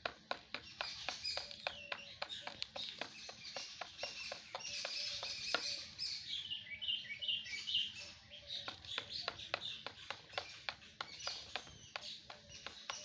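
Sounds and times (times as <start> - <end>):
beak tapping on plastic tub: 0.0 - 5.9, 8.6 - 13.0
small birds chirping: 0.0 - 13.0.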